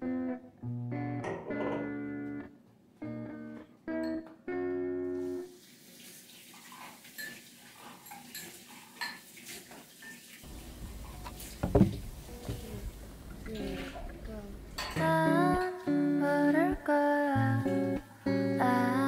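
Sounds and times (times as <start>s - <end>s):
guitar music: 0.0s - 5.5s, 10.5s - 19.0s
glasses and dishes clinking: 1.2s - 2.1s, 7.2s - 9.2s, 14.8s - 15.1s
kitchen tap running: 5.4s - 15.0s.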